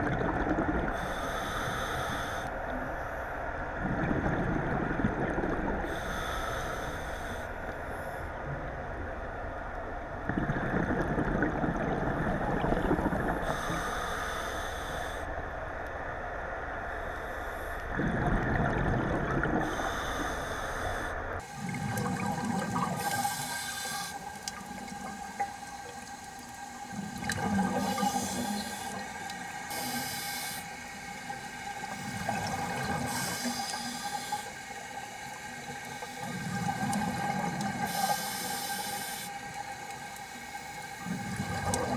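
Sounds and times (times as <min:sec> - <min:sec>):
faint steady hum: 0:00.0 - 0:41.9
regulator inhale hiss: 0:00.9 - 0:03.2, 0:05.8 - 0:08.4, 0:13.4 - 0:15.3, 0:19.6 - 0:21.8, 0:23.0 - 0:24.4, 0:27.7 - 0:36.8, 0:37.8 - 0:41.8
exhaled bubbles rushing: 0:03.8 - 0:05.9, 0:10.3 - 0:13.5, 0:18.0 - 0:19.7, 0:21.6 - 0:23.5, 0:24.2 - 0:29.4, 0:31.8 - 0:33.6, 0:36.1 - 0:38.0, 0:41.0 - 0:41.9.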